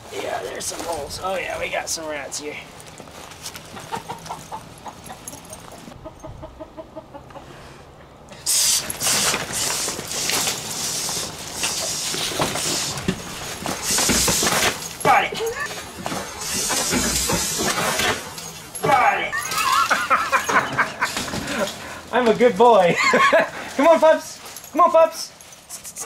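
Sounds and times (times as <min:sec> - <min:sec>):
chickens clucking: 0:03.6 - 0:08.4
dogs digging in dirt: 0:08.3 - 0:26.0.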